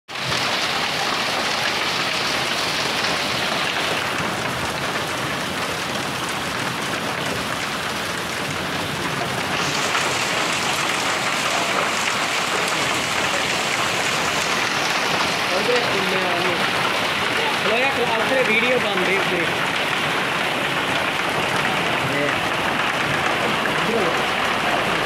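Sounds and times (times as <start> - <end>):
hail and heavy rain on pavement: 0.1 - 25.0.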